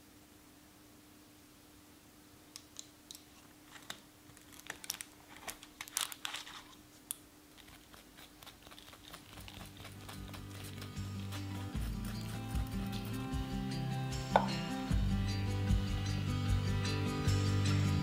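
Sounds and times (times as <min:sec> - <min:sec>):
faint clicks and crackles: 0:02.5 - 0:11.7
music: 0:10.1 - 0:18.0.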